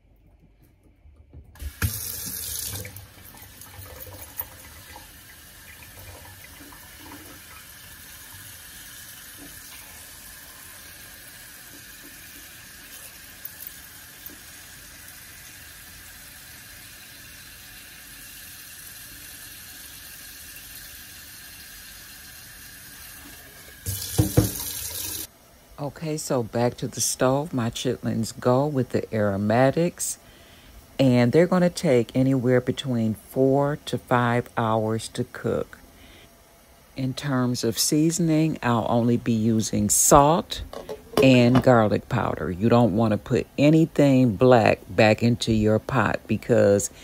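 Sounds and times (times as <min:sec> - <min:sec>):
faucet water pouring into saucepan: 0:01.6 - 0:25.3.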